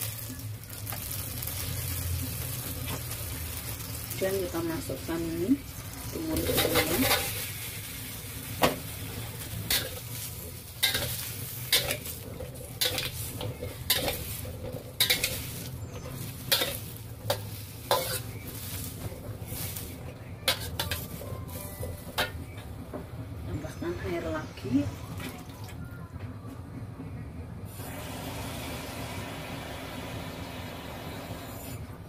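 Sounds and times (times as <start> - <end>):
food sizzling in a wok: 0.0 - 22.7, 27.7 - 31.8
spatula scraping a wok: 5.7 - 22.6.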